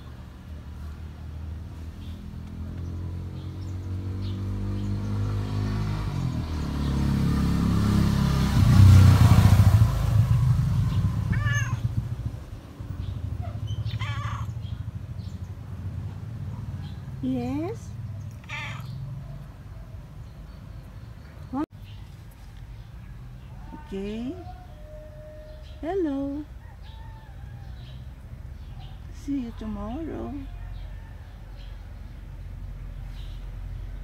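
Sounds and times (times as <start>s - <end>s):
motor vehicle passing: 0.0s - 34.0s
cat meowing: 11.3s - 11.9s, 13.9s - 14.6s, 18.3s - 19.0s.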